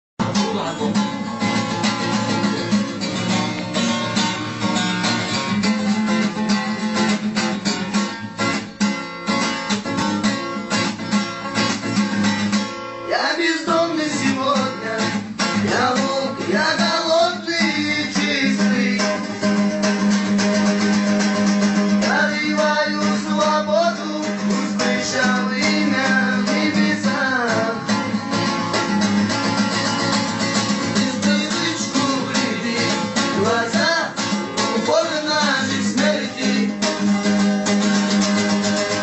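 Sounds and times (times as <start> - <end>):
acoustic guitar strumming: 0.2 - 39.0
person singing: 13.1 - 19.6, 21.9 - 28.2, 30.6 - 37.2.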